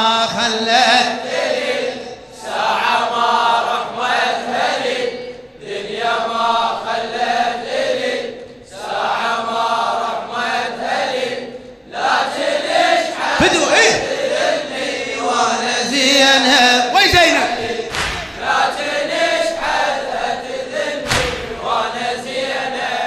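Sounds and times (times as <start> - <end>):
men chanting a lament: 0.0 - 23.0.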